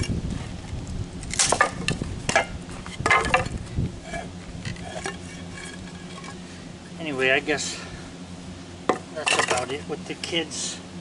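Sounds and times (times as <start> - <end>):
blade splitting wood: 1.2 - 6.4.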